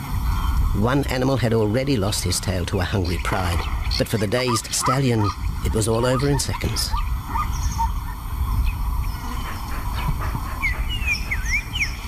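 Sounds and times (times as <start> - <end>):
steady low rumble: 0.0 - 12.0
bird chirps: 2.8 - 12.0.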